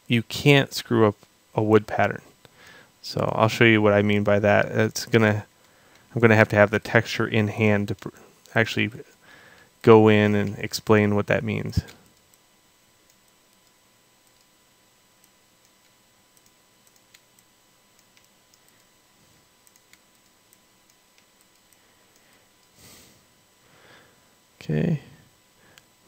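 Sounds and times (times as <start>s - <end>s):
computer mouse and keyboard clicks: 15.2s - 18.9s, 19.6s - 22.8s.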